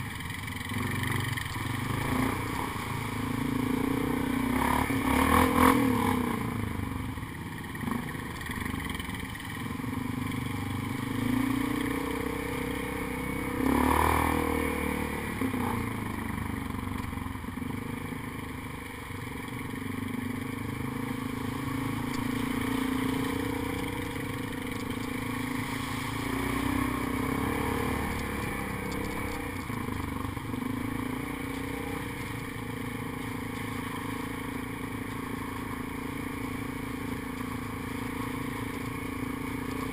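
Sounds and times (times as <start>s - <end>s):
atv engine running: 0.0s - 39.9s
machine clattering over ruts: 19.4s - 39.9s.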